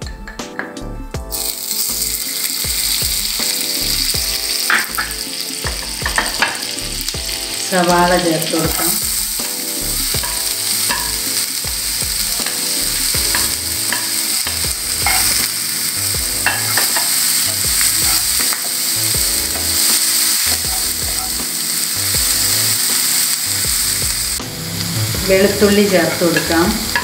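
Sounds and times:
onions sizzling in butter: 1.3s - 27.0s
spatula knocking against pan: 4.7s - 6.7s, 10.2s - 11.3s, 13.2s - 15.4s, 16.2s - 19.8s
spatula stirring and scraping: 8.7s - 24.0s.

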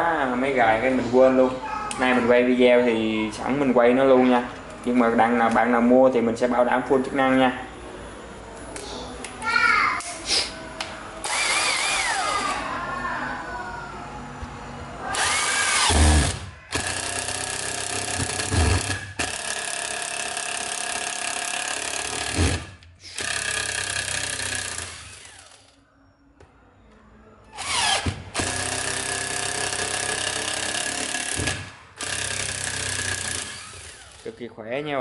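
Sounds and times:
cordless drill boring into wood: 11.2s - 12.5s, 15.1s - 25.7s, 27.6s - 34.3s.

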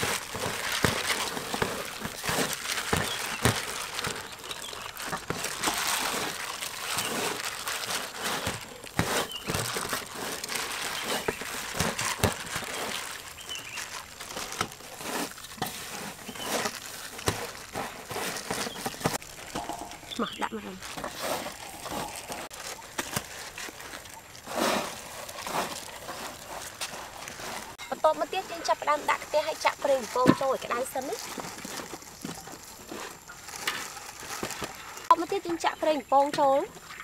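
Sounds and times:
breadcrumbs rustling and crunching: 0.0s - 35.2s.

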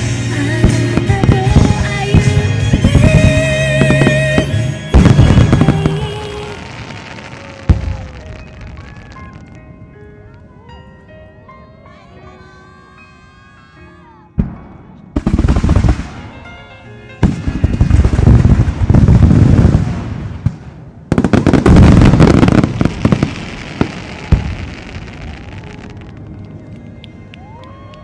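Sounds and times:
fireworks launching and bursting: 0.0s - 9.6s, 14.4s - 16.6s, 17.2s - 26.5s.

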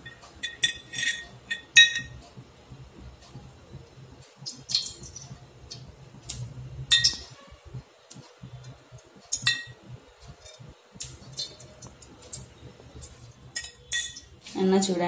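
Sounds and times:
spoon clinking against glass jar: 0.1s - 2.2s, 6.9s - 7.3s, 9.4s - 9.8s, 12.4s - 14.3s.

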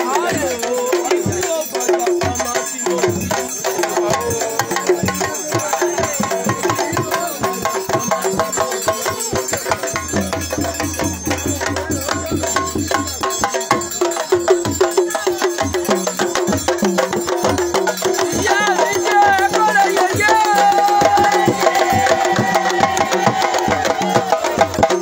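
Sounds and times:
drums beaten in quick rhythm: 0.0s - 25.0s
voices singing: 0.0s - 25.0s.

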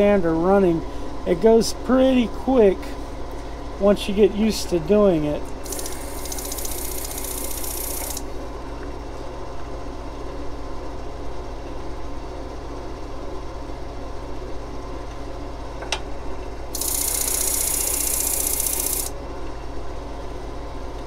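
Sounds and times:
disc sander motor humming: 5.6s - 8.2s, 16.8s - 19.1s.

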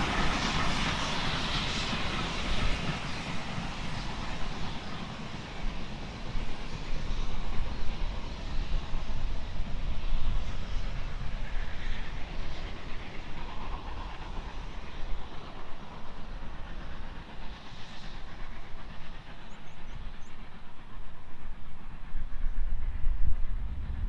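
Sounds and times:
distant steam locomotive: 0.0s - 24.0s
wind rumble on microphone: 22.2s - 24.0s.

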